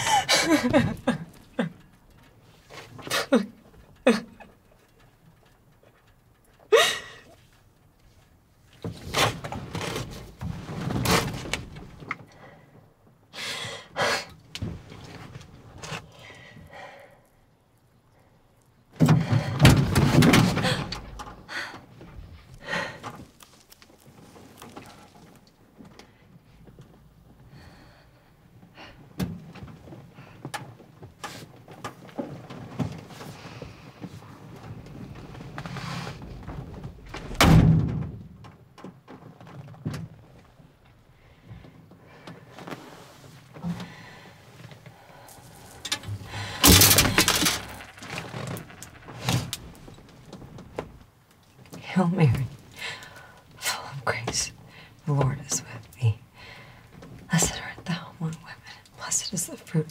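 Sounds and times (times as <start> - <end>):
woman sobbing: 0.0 - 1.9, 3.1 - 4.6, 6.7 - 7.4
heavy breaths and sniffs: 41.4 - 47.6.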